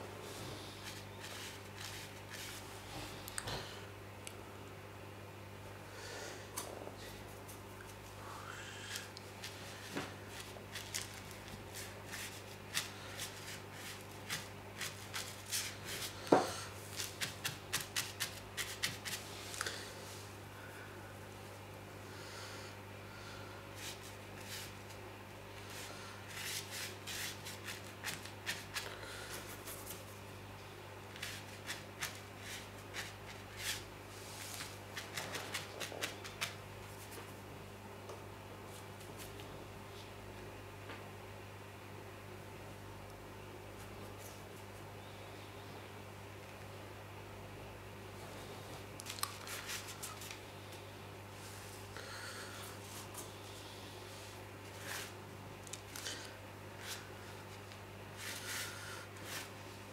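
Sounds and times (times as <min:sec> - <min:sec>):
steady low hum: 0:00.0 - 0:59.9
brush swishes on paper: 0:58.2 - 0:59.6.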